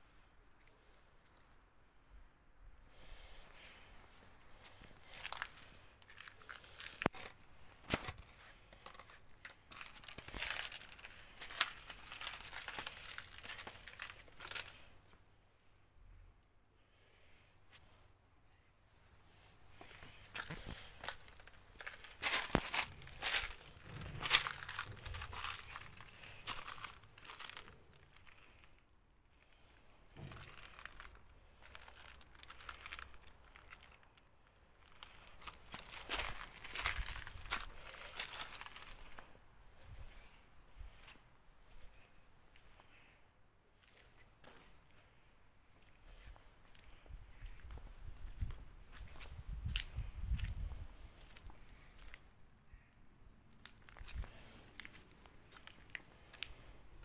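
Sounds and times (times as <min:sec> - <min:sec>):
footsteps on pebble path: 0:04.6 - 0:14.8, 0:19.8 - 0:28.7, 0:30.2 - 0:33.9, 0:34.9 - 0:39.3, 0:45.8 - 0:52.2.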